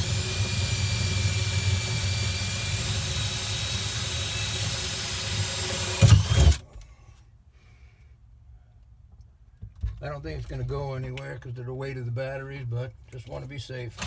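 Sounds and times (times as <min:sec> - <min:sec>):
cordless drill boring: 0:00.0 - 0:06.6.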